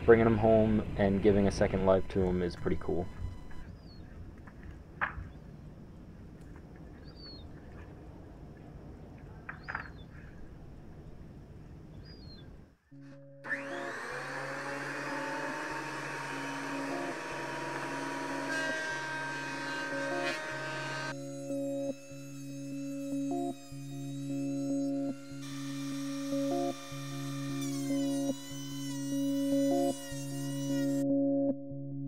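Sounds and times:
low music tones: 0:00.0 - 0:04.0, 0:12.9 - 0:32.0
outdoor background noise: 0:00.0 - 0:20.3
bird chirps: 0:02.0 - 0:04.2, 0:06.9 - 0:07.8, 0:09.4 - 0:10.4, 0:11.9 - 0:12.6
thickness planer whining: 0:13.0 - 0:31.1.

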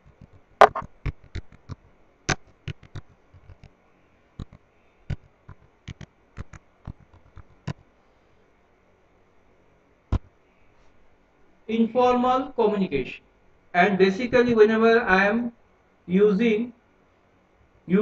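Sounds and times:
computer keyboard typing: 0:04.4 - 0:07.8.

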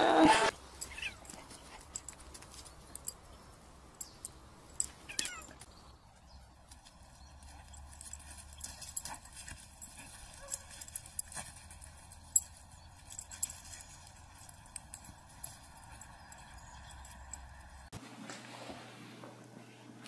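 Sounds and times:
animals scampering on leafy grass: 0:05.0 - 0:17.9.

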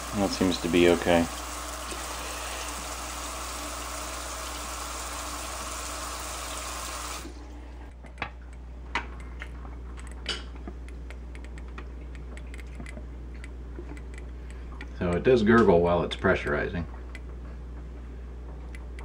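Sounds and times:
faucet sprayer running into sink: 0:00.0 - 0:07.4.

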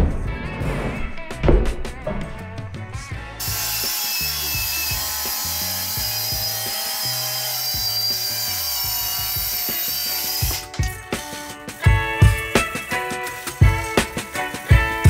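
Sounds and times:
circular saw cutting wood: 0:03.3 - 0:10.8.

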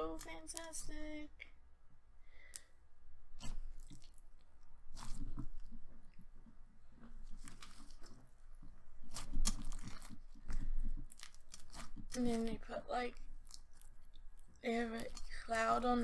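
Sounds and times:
slime squishing: 0:03.3 - 0:16.0.

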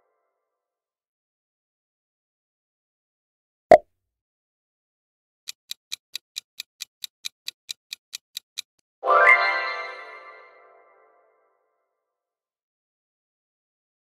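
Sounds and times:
clock-style ticks: 0:05.5 - 0:08.9.

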